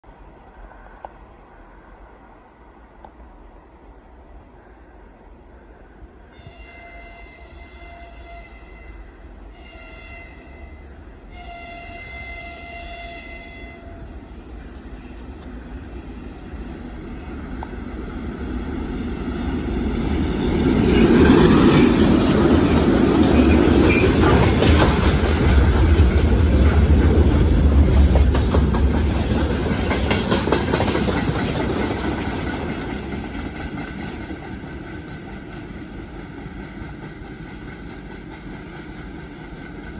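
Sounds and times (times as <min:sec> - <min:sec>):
freight train rumble: 0:00.0 - 0:39.9
locomotive horn blast: 0:06.4 - 0:14.2
wheels clattering over rail joints: 0:20.5 - 0:34.6.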